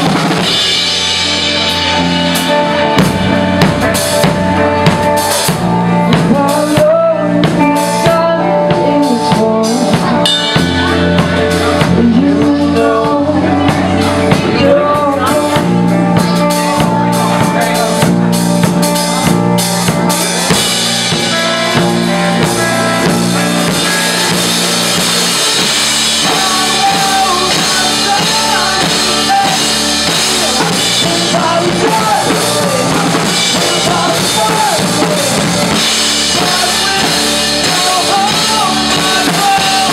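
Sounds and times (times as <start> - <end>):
drum kit: 0.0 - 39.9
electric bass: 0.0 - 39.9
electric guitar: 0.0 - 39.9
people singing: 6.1 - 18.0, 25.3 - 39.9.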